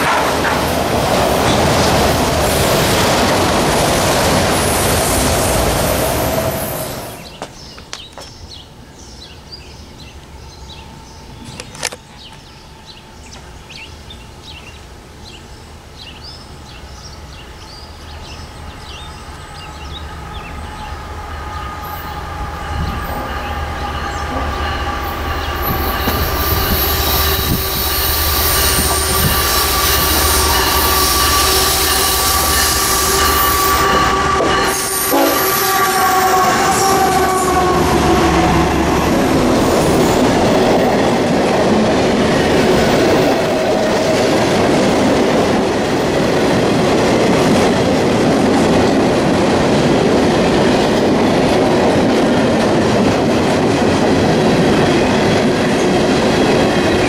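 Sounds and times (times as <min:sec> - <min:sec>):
train wheels clattering: 0:00.0 - 0:08.6, 0:20.7 - 0:35.7
freight train passing: 0:00.0 - 0:57.0
locomotive horn: 0:19.5 - 0:39.4.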